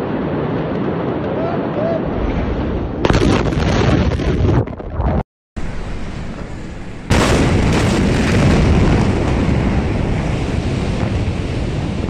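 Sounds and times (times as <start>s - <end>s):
explosion boom: 2.2s - 5.2s, 5.8s - 12.0s
wind buffeting on microphone: 6.2s - 12.0s.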